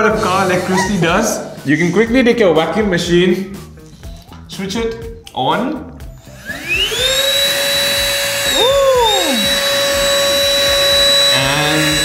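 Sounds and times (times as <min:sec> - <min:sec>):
handheld vacuum cleaner whining: 0:00.0 - 0:01.2, 0:06.2 - 0:12.0.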